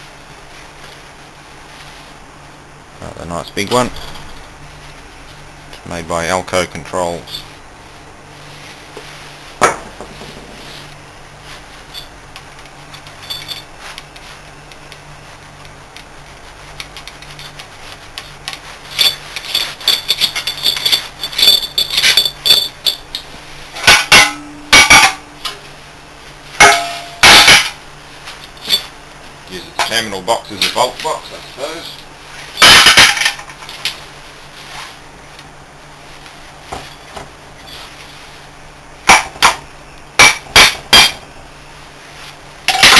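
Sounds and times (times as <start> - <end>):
light rattling clinks: 13.0 - 13.7, 18.9 - 23.3
spanner clinking on metal bolts: 13.0 - 13.7, 18.9 - 25.2, 40.2 - 41.2
ringing metallic clanks: 26.6 - 27.8.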